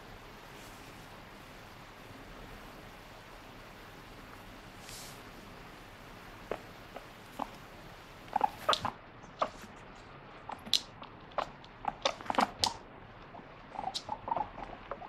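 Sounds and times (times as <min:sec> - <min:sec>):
guinea pig squeaking: 0:06.4 - 0:09.8, 0:10.4 - 0:15.0.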